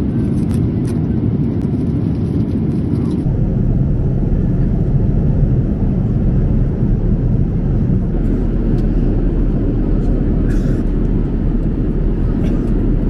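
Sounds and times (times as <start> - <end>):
airliner engines roaring: 0.0 - 13.0
rushing air: 3.2 - 13.0.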